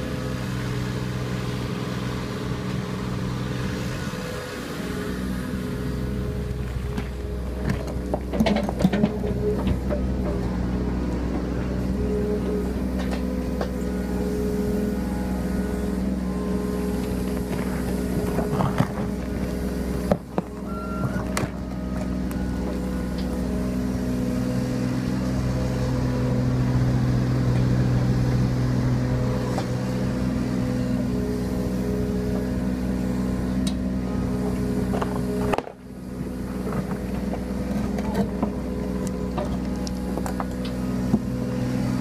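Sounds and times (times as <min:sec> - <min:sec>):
excavator diesel engine running: 0:00.0 - 0:42.0.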